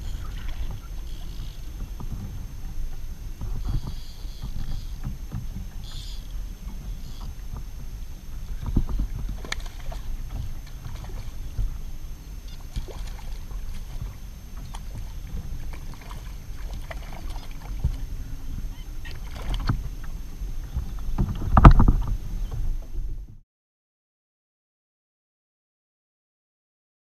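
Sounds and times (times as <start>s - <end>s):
water sloshing at kayak hull: 0.0s - 22.9s.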